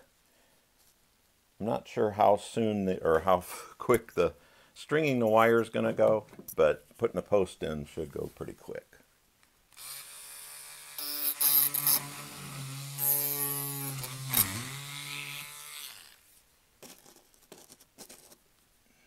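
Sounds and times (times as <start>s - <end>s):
rotary tool drilling: 9.7s - 16.3s.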